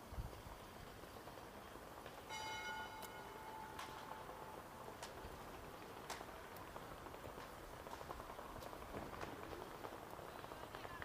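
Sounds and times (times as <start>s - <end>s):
bell-like chime ringing: 2.3s - 4.3s.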